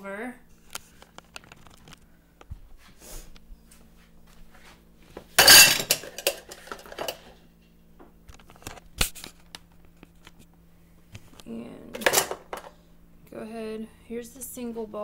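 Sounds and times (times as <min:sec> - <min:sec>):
bowls clinking together: 0:05.4 - 0:07.3
stacked dishes clattering: 0:05.4 - 0:07.3, 0:12.0 - 0:12.7.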